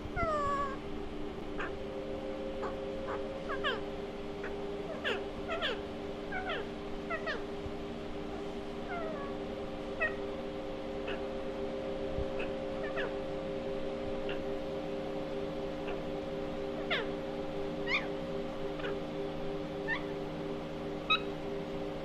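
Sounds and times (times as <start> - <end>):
steady low hum: 0.0 - 22.0
parakeet squeaky chirps: 2.6 - 3.8, 17.8 - 18.1, 19.8 - 20.1, 21.1 - 21.3.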